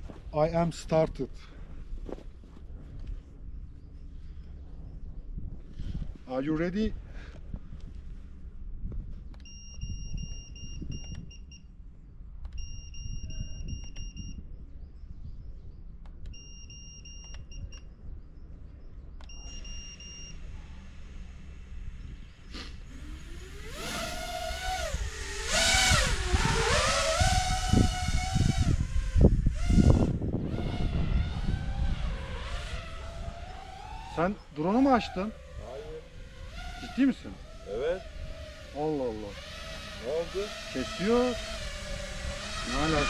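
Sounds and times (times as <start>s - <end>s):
drone motors whining: 9.0s - 43.0s.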